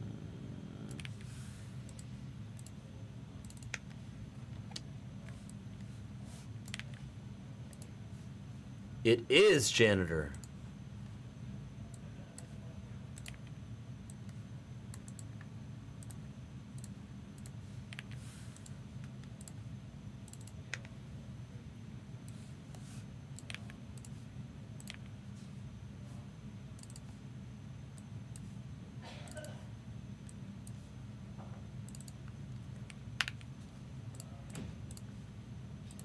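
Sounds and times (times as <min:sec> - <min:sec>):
low electrical hum: 0:00.0 - 0:36.0
mouse and keyboard clicks: 0:06.6 - 0:07.0.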